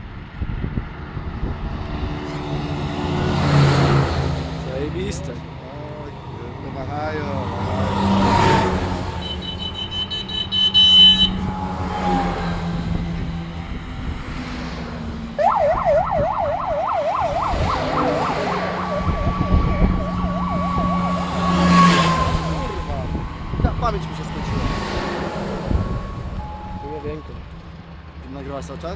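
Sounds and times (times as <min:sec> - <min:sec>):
vehicles driving past: 0:00.0 - 0:28.9
siren yelping: 0:09.2 - 0:12.9, 0:15.4 - 0:27.2
high tone: 0:09.2 - 0:13.3, 0:15.4 - 0:24.6.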